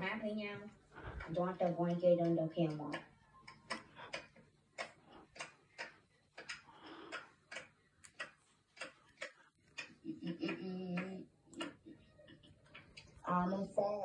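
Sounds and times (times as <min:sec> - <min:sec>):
regular sharp ticking: 0:00.0 - 0:14.0
voice humming: 0:10.0 - 0:11.3.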